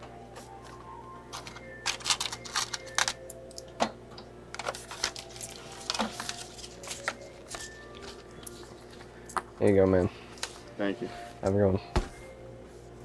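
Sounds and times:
cash register keys clicking: 1.3s - 3.2s.

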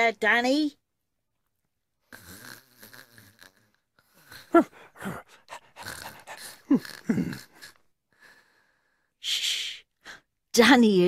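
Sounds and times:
boy snoring: 2.1s - 7.8s.

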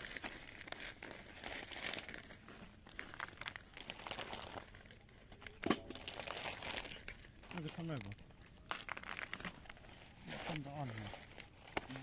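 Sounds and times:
plastic sack rustling: 0.0s - 12.0s.

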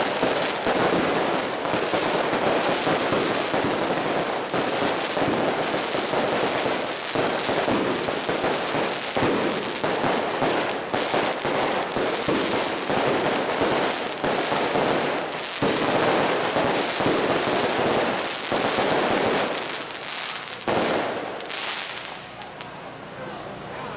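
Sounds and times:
fireworks crackling bangs: 0.0s - 22.9s.

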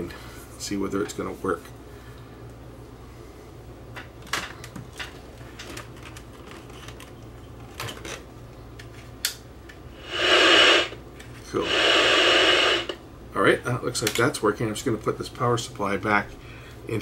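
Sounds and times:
loud static hiss from speaker: 0.0s - 2.0s, 9.8s - 17.0s.

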